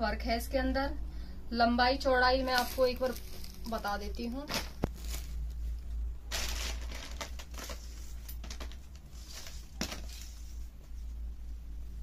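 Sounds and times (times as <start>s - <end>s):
steady low hum: 0.0s - 12.0s
silk fabric rustling: 2.3s - 11.6s.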